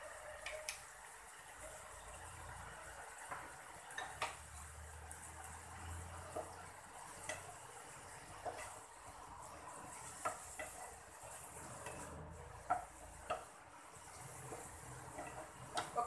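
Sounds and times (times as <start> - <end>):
food sizzling: 0.0 - 16.0
spatula scraping a pan: 5.5 - 16.0.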